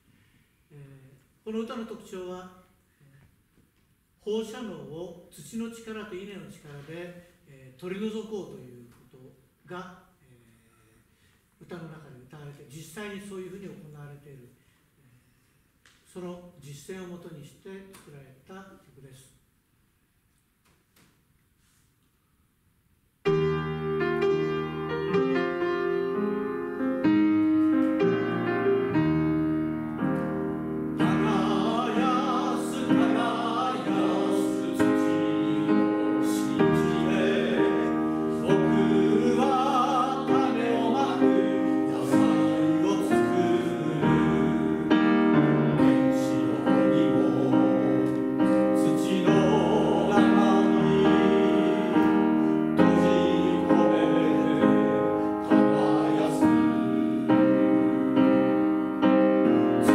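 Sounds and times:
piano playing: 23.2 - 59.9
men singing: 31.0 - 57.6.

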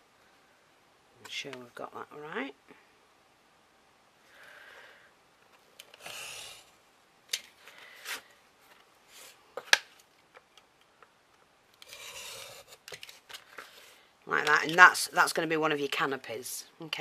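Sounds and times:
craft knife cutting along metal ruler: 11.8 - 12.7.

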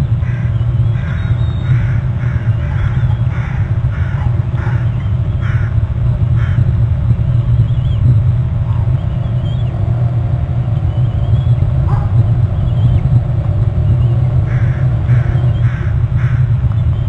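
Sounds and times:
eaglet calling: 0.0 - 5.8
steady low rumble: 0.0 - 17.0.

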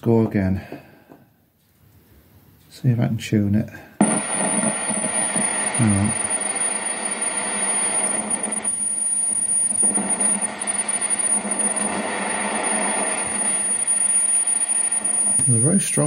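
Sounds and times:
high-pitched radio whistle: 4.0 - 16.0
radio hiss and static: 4.0 - 16.0.

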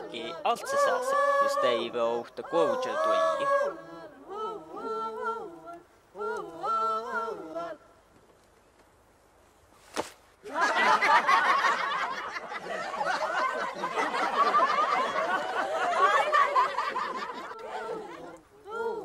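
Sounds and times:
sharp crack: 9.8 - 10.3
crowd laughing: 10.4 - 18.4.

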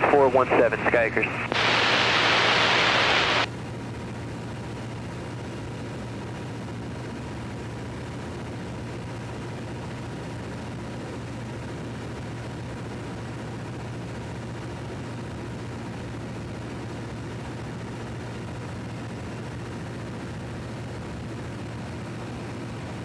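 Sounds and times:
radio static hiss: 0.0 - 3.5
small plane engine drone: 0.0 - 23.0.

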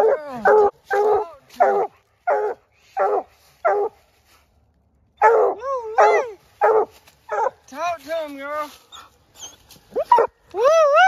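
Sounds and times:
dog barking: 0.0 - 4.0, 5.2 - 7.6.

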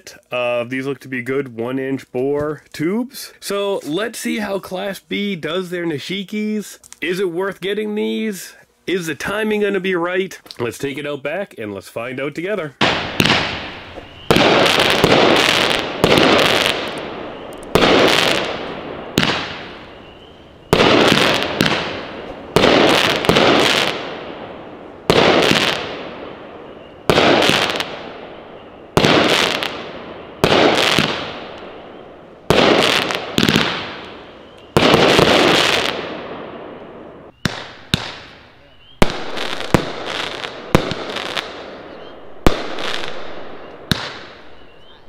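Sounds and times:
fireworks shots bursting and crackling: 12.8 - 44.9.

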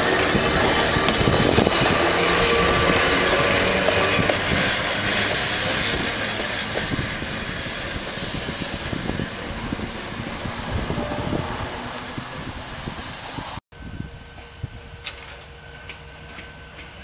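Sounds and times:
wheels clicking over rail joints: 0.0 - 8.0, 14.4 - 17.0
electric train rolling past: 0.0 - 17.0.

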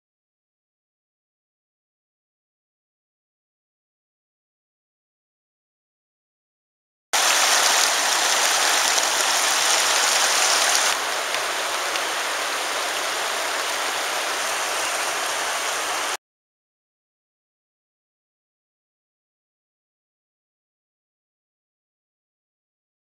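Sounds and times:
water rushing over rocks: 7.2 - 16.2.

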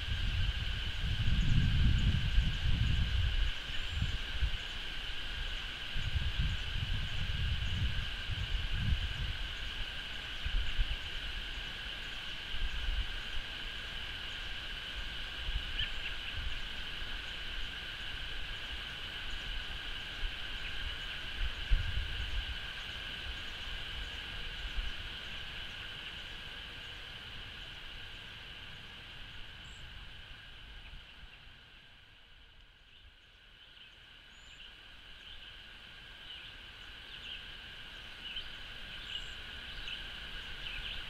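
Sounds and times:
wind rumble on microphone: 0.0 - 26.6.

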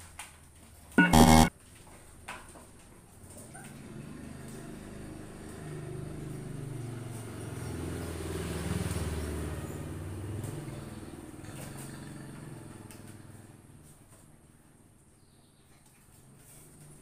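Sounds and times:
vehicle engine passing by: 3.7 - 13.8.

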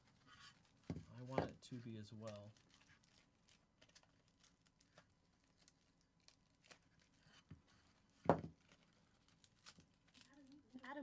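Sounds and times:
tape peeling off foil: 2.2 - 11.0.

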